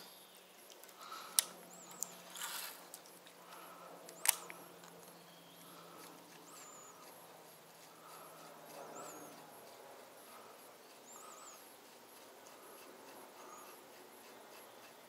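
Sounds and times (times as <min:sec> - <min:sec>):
faint low hum: 0:00.0 - 0:15.0
sharp clicks: 0:00.6 - 0:02.2, 0:02.9 - 0:05.2
brief rustle: 0:00.7 - 0:03.2.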